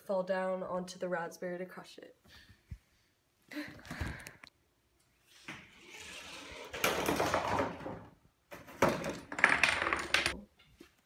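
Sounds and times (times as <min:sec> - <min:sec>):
ball rolling down plastic ramp: 0:05.5 - 0:10.4
objects rattling and clattering: 0:06.6 - 0:10.4.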